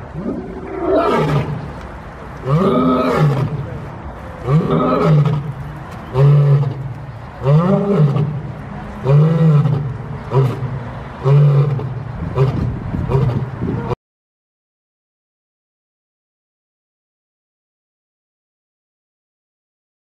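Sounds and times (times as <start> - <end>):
lion roaring: 2.4 - 3.6, 4.4 - 5.5.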